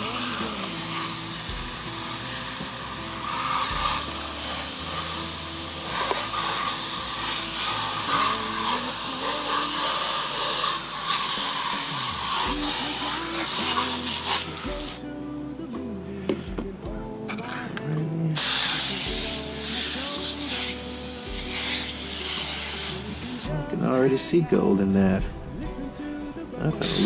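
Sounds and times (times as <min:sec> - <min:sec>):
water hissing from spray nozzle: 0:00.0 - 0:15.2, 0:18.3 - 0:24.1, 0:26.7 - 0:27.0
background music with held notes: 0:00.0 - 0:27.0.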